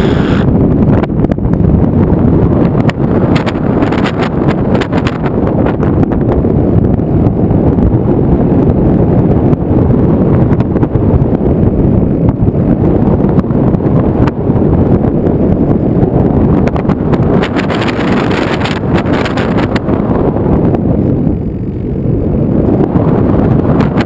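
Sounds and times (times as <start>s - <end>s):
high-pitched whine: 0.0s - 0.5s
wind rumbling on microphone: 0.0s - 24.0s.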